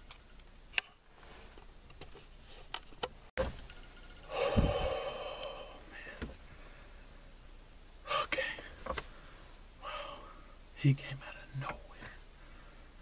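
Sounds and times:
man exhaling loudly: 4.3 - 6.2.

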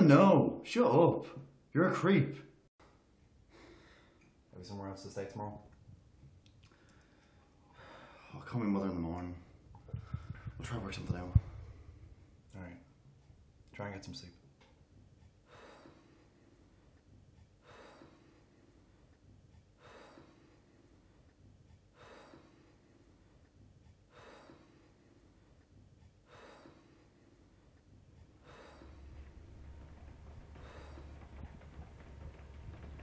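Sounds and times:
person breathing slowly: 3.5 - 4.3, 6.6 - 8.4, 9.5 - 10.6, 11.2 - 12.4, 15.4 - 33.0
low hum: 27.8 - 33.0.

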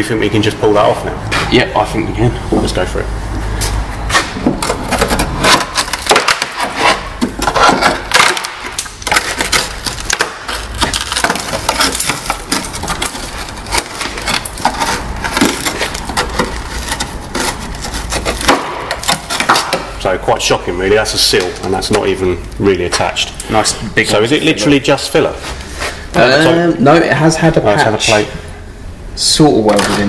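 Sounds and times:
corroded metal scraping and creaking: 4.1 - 19.7
body filler cracking and crunching: 4.1 - 20.0.

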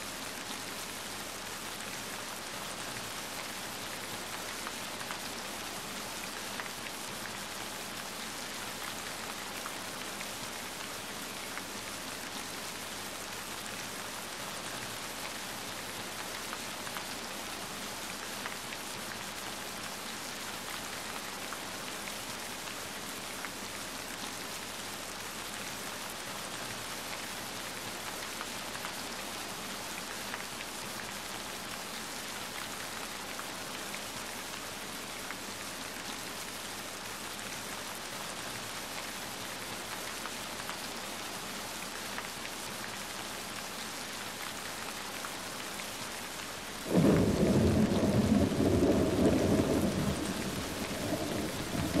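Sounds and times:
steady rain hiss: 0.0 - 52.0
low rumble of thunder: 46.9 - 52.0.

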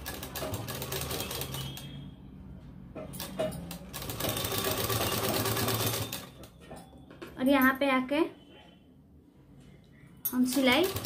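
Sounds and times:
sewing machine stitching: 0.0 - 1.9, 3.2 - 6.5, 10.4 - 11.0.

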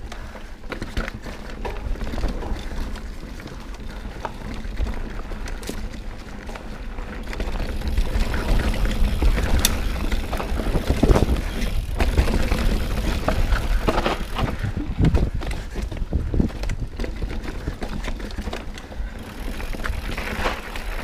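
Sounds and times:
bike frame and chain rattling: 0.0 - 21.0
bike tyres rolling on dirt: 0.0 - 21.0
wind buffeting microphone: 7.8 - 18.1.

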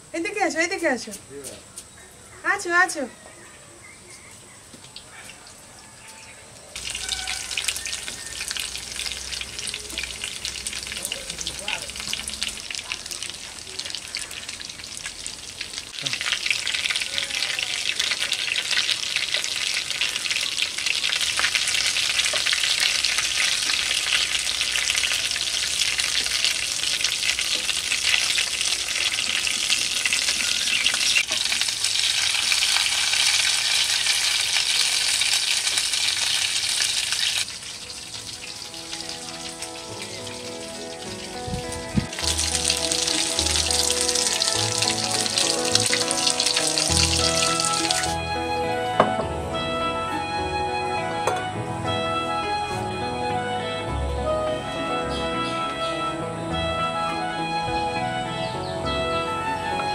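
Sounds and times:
food sizzling in hot oil: 6.8 - 48.2.

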